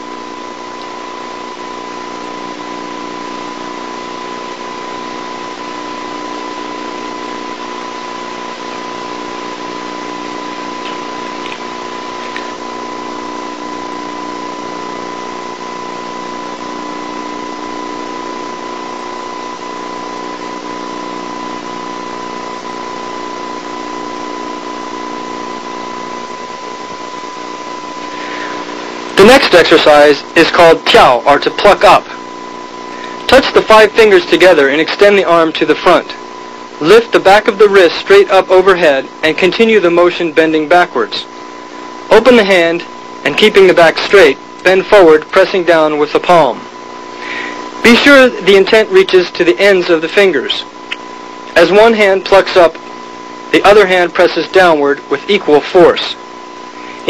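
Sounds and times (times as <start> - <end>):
low hum: 0.0 - 37.7
tape hiss: 0.0 - 57.0.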